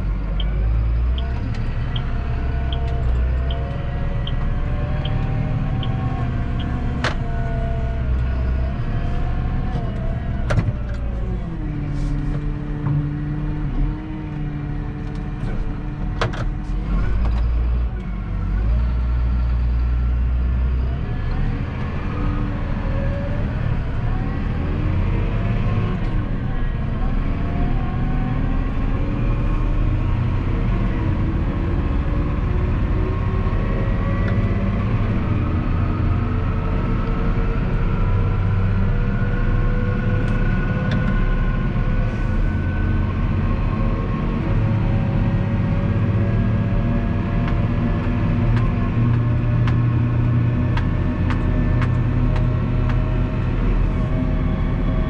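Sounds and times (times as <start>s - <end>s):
tractor diesel engine running: 14.8s - 55.0s.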